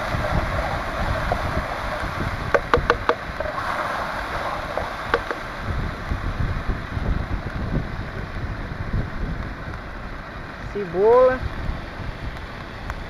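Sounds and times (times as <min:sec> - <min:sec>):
wind buffeting microphone: 0:00.0 - 0:13.0
spatula tapping metal pan: 0:02.6 - 0:03.2, 0:05.1 - 0:05.4.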